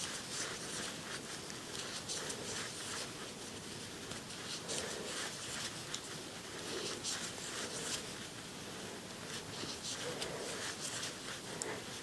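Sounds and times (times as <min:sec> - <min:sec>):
crochet hook and yarn scratching: 0:00.0 - 0:03.4, 0:09.4 - 0:11.5.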